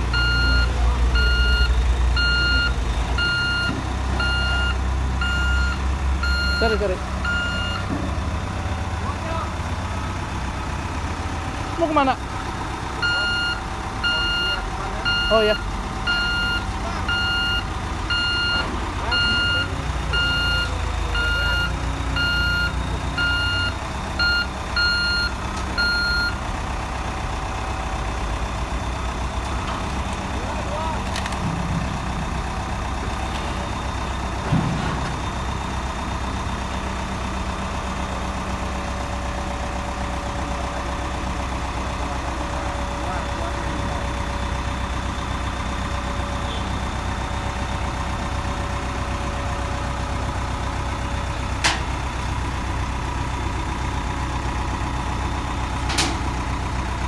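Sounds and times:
diesel engine running: 0:00.0 - 0:57.0
reversing alarm beeping: 0:00.1 - 0:07.9, 0:13.0 - 0:26.4.

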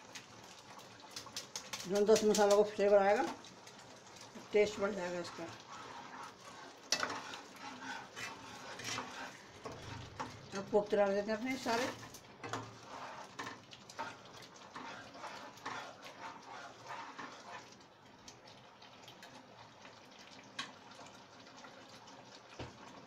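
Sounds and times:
gravy bubbling: 0:00.0 - 0:10.8, 0:12.2 - 0:23.0.

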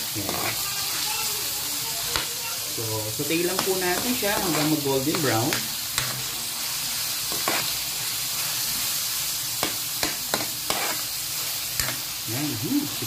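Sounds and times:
meat sizzling in a wok: 0:00.0 - 0:13.0
metal spatula scraping pan: 0:03.6 - 0:05.4, 0:10.3 - 0:11.1.

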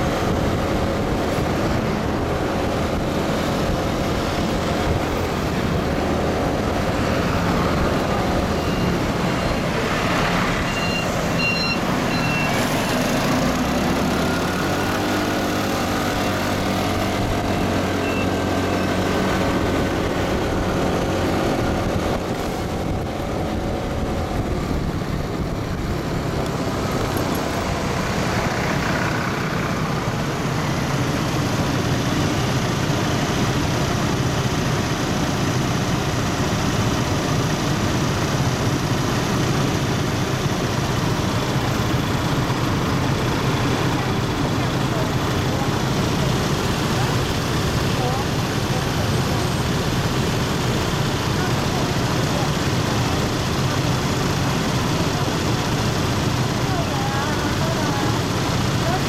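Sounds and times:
motorcycle engine hum: 0:00.0 - 0:59.0
wind and road noise: 0:00.0 - 0:59.0
short high beeps: 0:08.4 - 0:09.7, 0:10.6 - 0:13.0.

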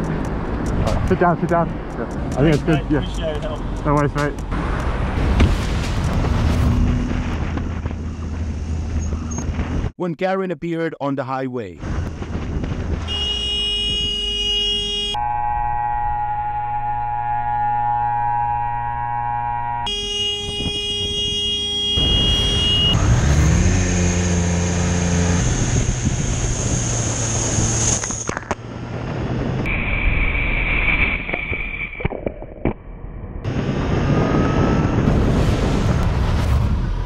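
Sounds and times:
motorcycle engine and road noise: 0:00.0 - 0:10.0, 0:11.8 - 0:37.0
vehicle horns: 0:13.0 - 0:24.4.

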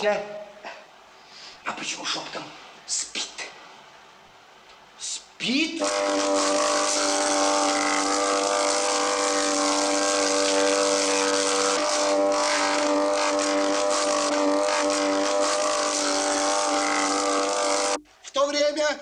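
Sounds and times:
steady motor drone: 0:05.8 - 0:18.0.

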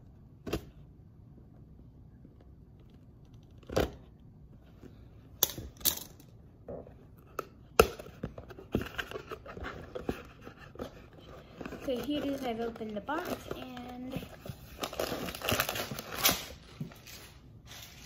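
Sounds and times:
cardboard crinkling and rustling: 0:08.4 - 0:18.0.

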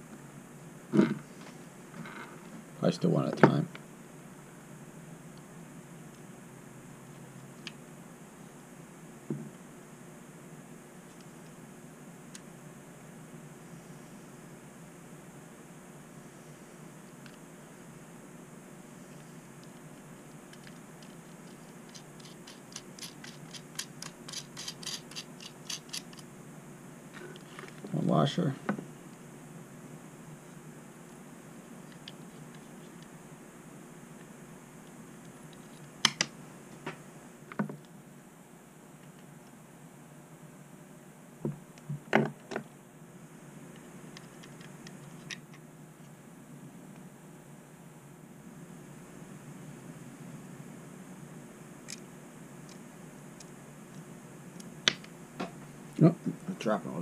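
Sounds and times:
low steady hum: 0:00.0 - 0:57.0
small screws clicking: 0:20.5 - 0:26.2.

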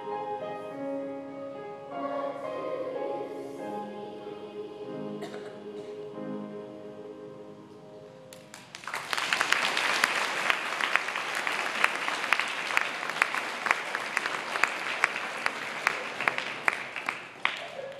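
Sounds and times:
audience applauding: 0:08.3 - 0:17.9.

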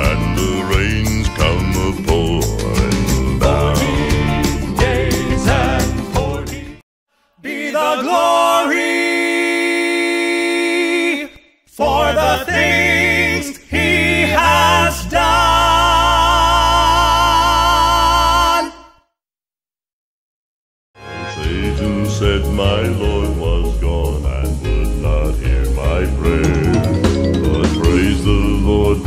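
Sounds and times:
bass singer low note: 0:00.0 - 0:06.3, 0:21.3 - 0:29.0
male quartet singing in harmony: 0:00.0 - 0:06.8, 0:07.4 - 0:18.8, 0:21.3 - 0:29.0.

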